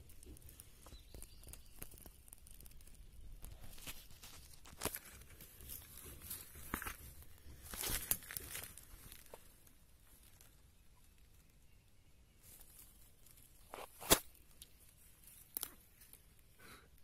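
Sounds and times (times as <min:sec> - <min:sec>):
rustling and crackling clicks: 0:00.0 - 0:11.6.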